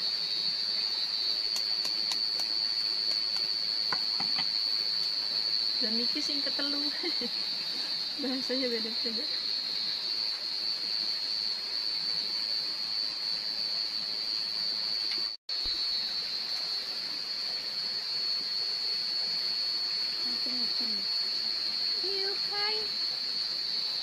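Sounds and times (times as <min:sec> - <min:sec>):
constant hiss: 0:00.0 - 0:24.0
night insects trilling: 0:00.0 - 0:24.0.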